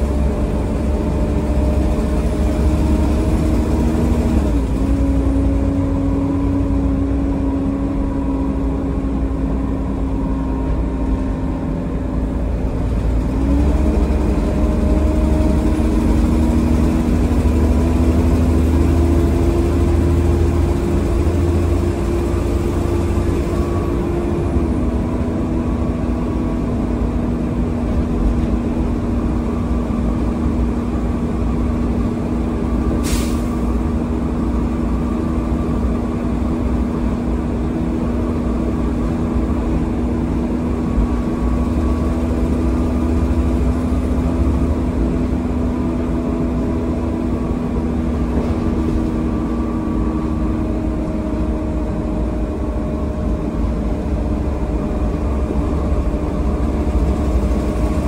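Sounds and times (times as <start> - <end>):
bus engine running: 0.0 - 58.0.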